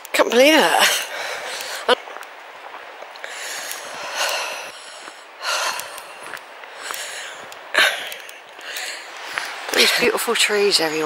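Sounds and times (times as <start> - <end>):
footsteps on stony path: 0.0 - 11.0
person breathing hard: 0.8 - 1.9, 3.2 - 9.7.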